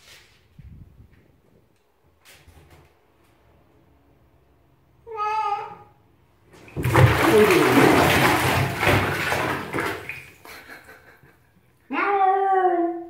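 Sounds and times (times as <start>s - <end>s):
shower water splashing in bathtub: 6.5s - 11.2s.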